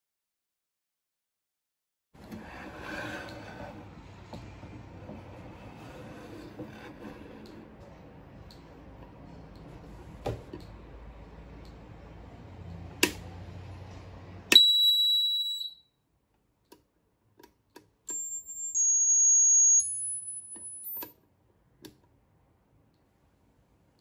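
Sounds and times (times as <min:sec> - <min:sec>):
high-pitched electronic tones: 0:18.1 - 0:21.0.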